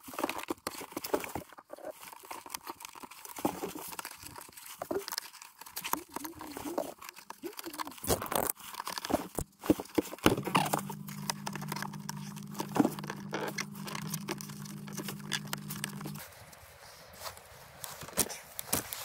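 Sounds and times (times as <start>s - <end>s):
steady low hum: 10.4s - 16.2s.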